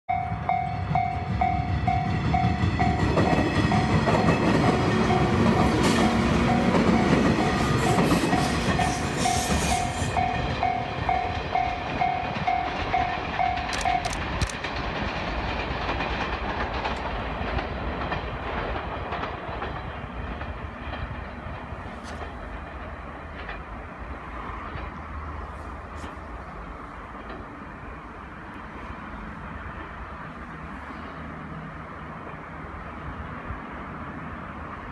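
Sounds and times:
electric train accelerating: 0.1s - 34.9s
rail-joint clatter: 1.9s - 28.8s.

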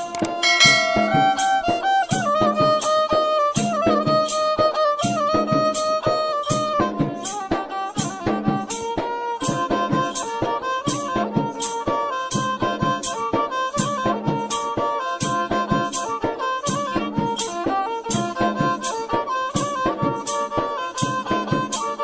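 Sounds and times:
steady percussion beat: 0.2s - 2.2s.

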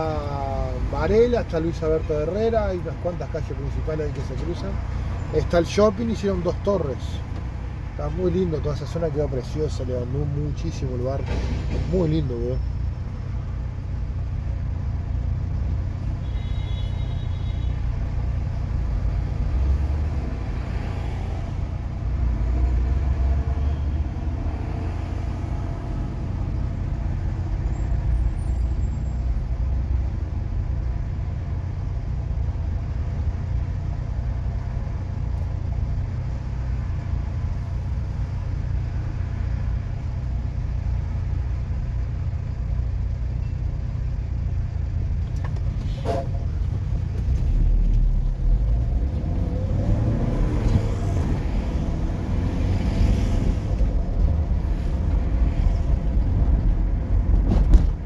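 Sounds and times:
vehicle engine and road rumble: 0.0s - 58.0s.

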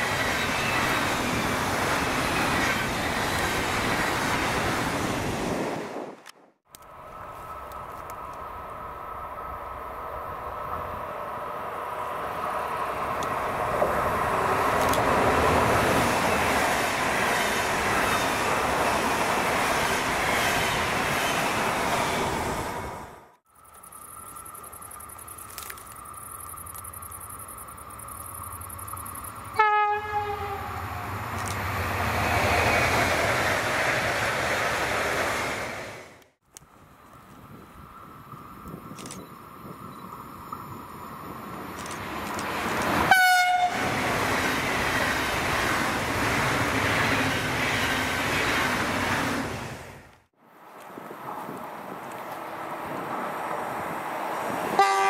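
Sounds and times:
train rumbling past: 0.0s - 6.2s, 6.9s - 36.3s, 37.4s - 55.0s
train horn blast: 29.6s - 31.1s, 43.1s - 43.9s, 54.7s - 55.0s.

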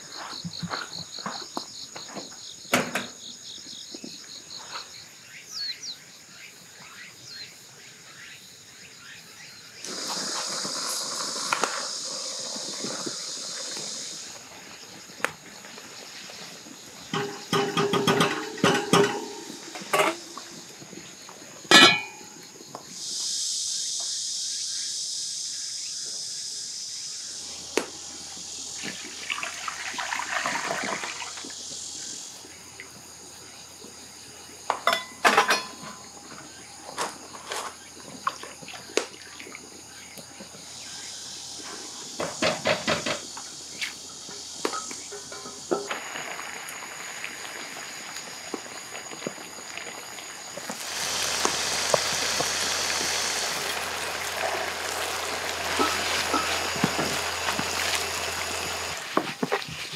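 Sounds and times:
cicadas buzzing: 0.0s - 59.9s
cooking utensils clinking on pots: 17.0s - 20.6s, 21.6s - 22.4s, 34.7s - 36.1s, 44.6s - 46.0s, 53.7s - 59.0s.

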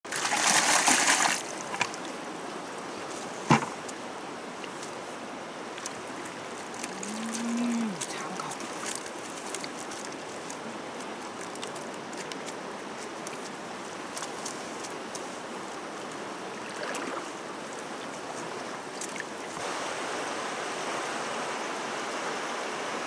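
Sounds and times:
water splashing from bucket: 0.1s - 2.1s, 16.6s - 17.3s.

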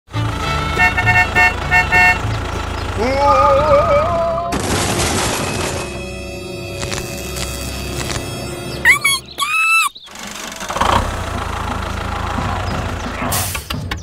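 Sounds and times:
horn tooting in short blasts: 0.4s - 2.2s.

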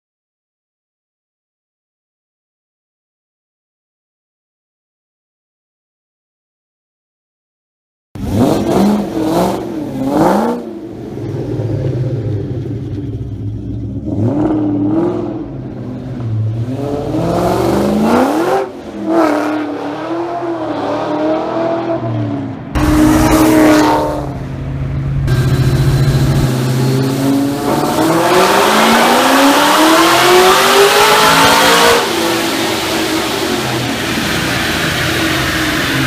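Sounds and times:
car engine revving: 8.2s - 36.0s.

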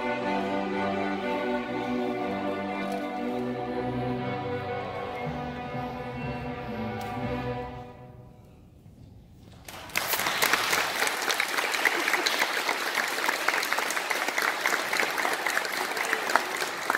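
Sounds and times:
audience applause: 9.6s - 16.9s.

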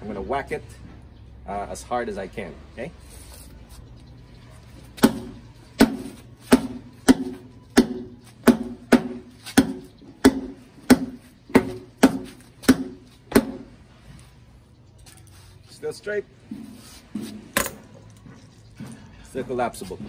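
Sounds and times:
baton striking rubber tire: 5.0s - 13.8s.

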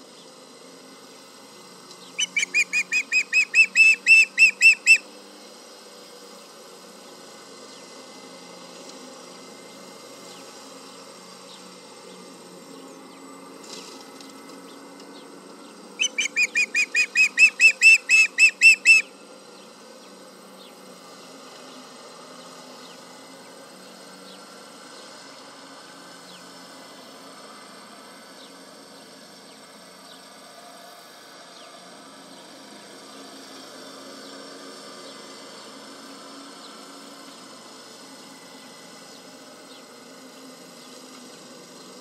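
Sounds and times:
osprey whistled chirps: 2.2s - 5.0s, 16.0s - 19.1s.

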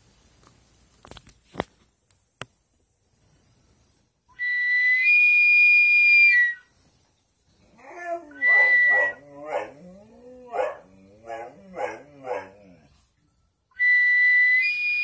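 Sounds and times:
high-pitched whistle: 4.3s - 6.7s, 8.3s - 9.2s, 13.7s - 15.0s.

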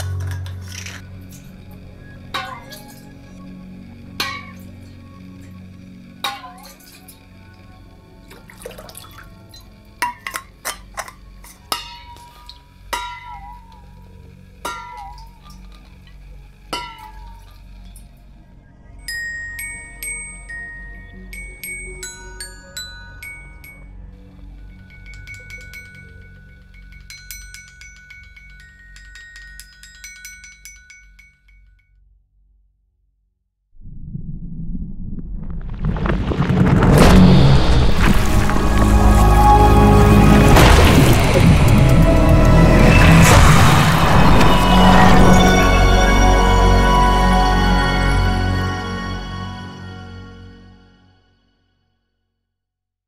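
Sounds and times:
low steady hum: 0.0s - 30.9s
water splashing in a bowl: 8.3s - 9.7s
metal tube tapped and ringing: 11.7s - 13.9s, 24.9s - 31.9s
glockenspiel notes ringing: 19.0s - 31.8s, 41.6s - 49.6s.

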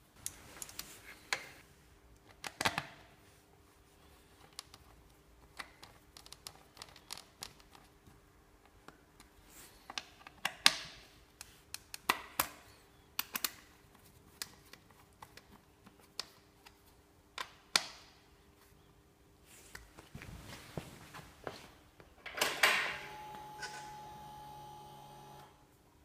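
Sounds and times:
faint steady hum: 18.2s - 26.0s.

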